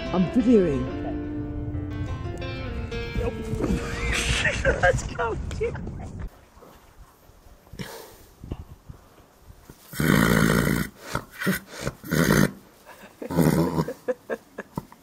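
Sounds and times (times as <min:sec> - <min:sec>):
horse snoring: 0:09.9 - 0:12.6.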